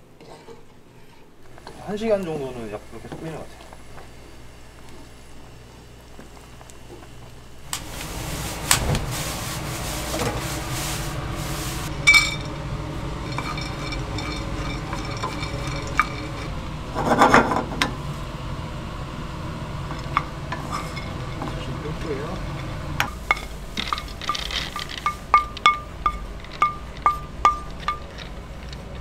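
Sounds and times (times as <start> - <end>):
kitchen background noise: 0.0 - 29.0
utensils knocking and clinking: 12.0 - 12.6, 13.2 - 17.9, 23.0 - 29.0
cookware clatter: 13.2 - 17.9.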